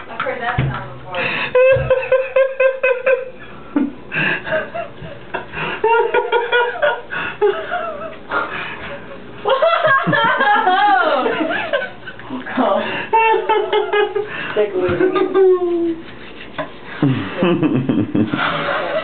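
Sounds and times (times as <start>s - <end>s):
people laughing and giggling: 1.2s - 19.0s.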